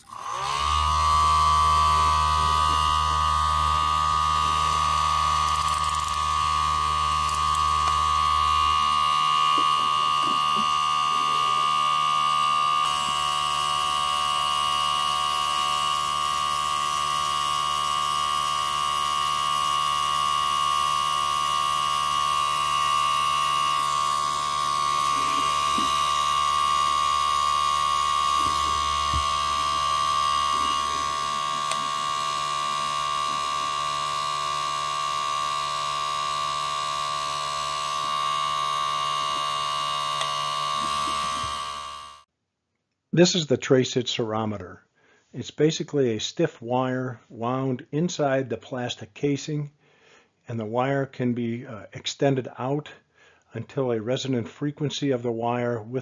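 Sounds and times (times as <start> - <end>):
model engine buzzing drone: 0.0 - 42.3.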